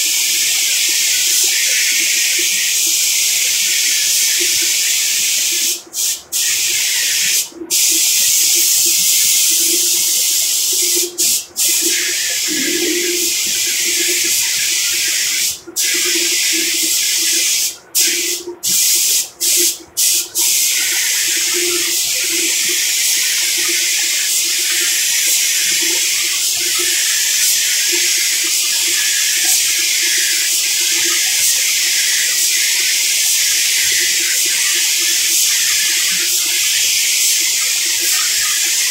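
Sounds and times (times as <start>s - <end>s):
paint spray gun hissing: 0.0s - 38.9s.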